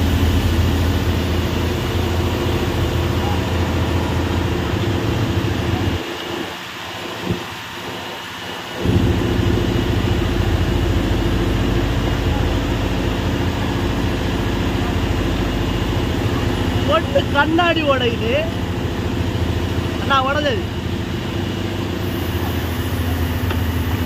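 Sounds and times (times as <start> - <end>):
boat engine running: 0.0 - 24.0
water rushing along hull: 0.0 - 24.0.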